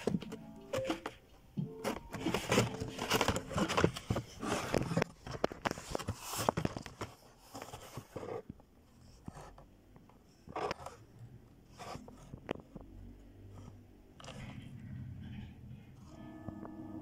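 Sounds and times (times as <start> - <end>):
packaging scraping and rustling: 1.8 - 9.6.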